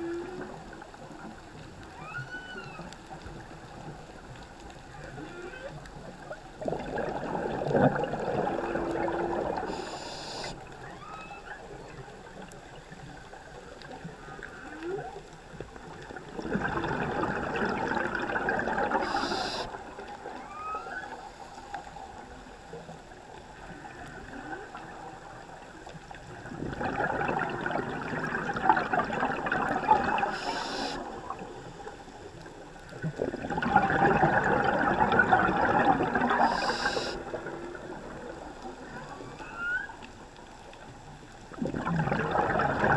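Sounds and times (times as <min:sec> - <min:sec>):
whale song moans: 0:00.0 - 0:00.7, 0:01.9 - 0:03.0, 0:05.1 - 0:05.8, 0:08.3 - 0:11.7, 0:17.8 - 0:21.3, 0:38.8 - 0:40.1
diver regulator bubbles: 0:05.6 - 0:11.0, 0:11.7 - 0:20.5, 0:23.6 - 0:39.7, 0:41.2 - 0:42.9
hiss of inhaling: 0:09.7 - 0:10.6, 0:19.0 - 0:19.8, 0:30.2 - 0:31.1, 0:36.4 - 0:37.2.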